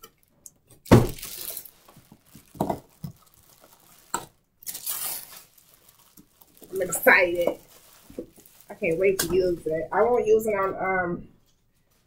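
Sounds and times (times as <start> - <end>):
plastic bag crinkling: 0.0 - 10.6.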